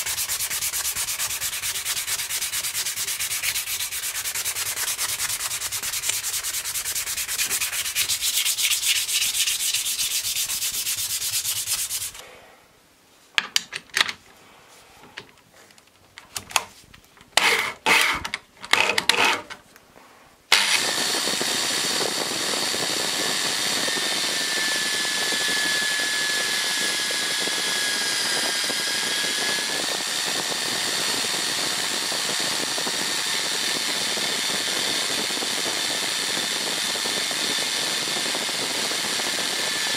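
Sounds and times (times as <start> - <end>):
sandpaper rubbing wood: 0.0 - 12.2
drill press running: 20.5 - 36.6.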